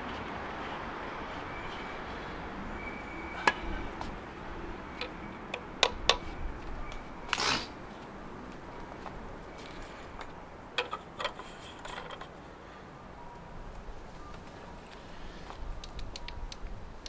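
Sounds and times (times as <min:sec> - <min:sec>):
light ticks: 0:13.4 - 0:16.8.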